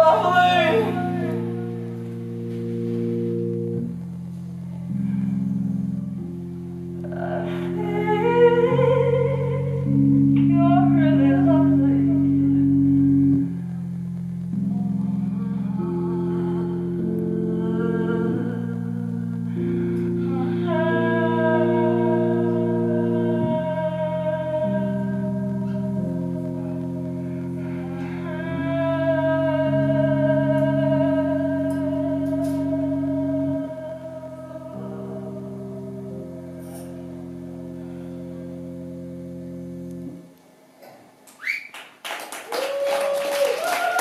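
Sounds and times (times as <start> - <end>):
wavering high held note: 0.0 - 13.9
rock band sustained chords: 0.0 - 41.0
audience cheering and clapping: 41.3 - 44.0.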